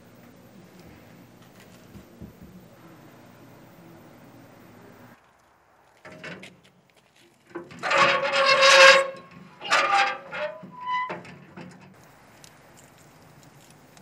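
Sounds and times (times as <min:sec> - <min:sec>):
crank mechanism squeaking: 0:07.5 - 0:12.0
grill crank grinding: 0:07.5 - 0:12.0.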